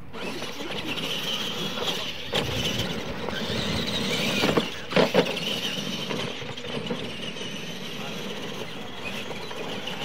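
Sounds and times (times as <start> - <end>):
rc trucks motor whine: 0.0 - 10.0
trucks thumping on jumps: 0.2 - 7.6.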